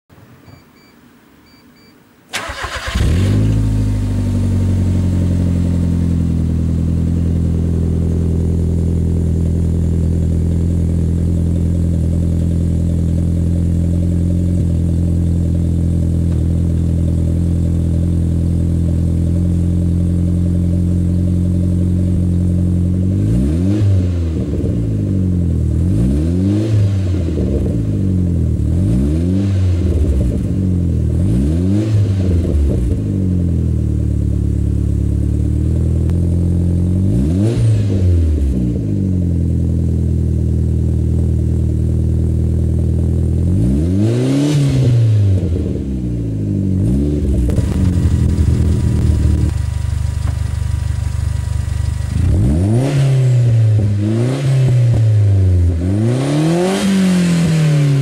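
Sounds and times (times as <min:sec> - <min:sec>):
car engine starting and idling: 0:00.4 - 0:58.0
engine revving: 0:02.3 - 0:06.2, 0:23.0 - 0:33.6, 0:35.6 - 0:39.3, 0:43.4 - 0:58.0.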